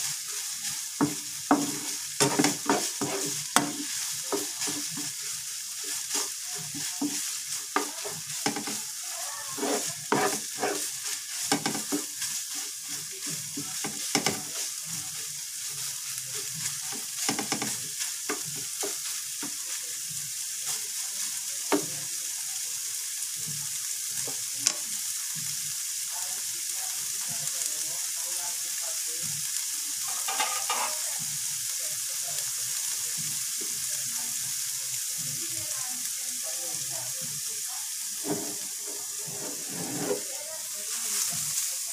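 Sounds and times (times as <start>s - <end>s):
spatula scraping pan: 0.0s - 14.8s, 15.5s - 19.6s, 30.1s - 31.0s, 38.2s - 40.4s
meat and egg sizzling in pan: 0.0s - 41.9s.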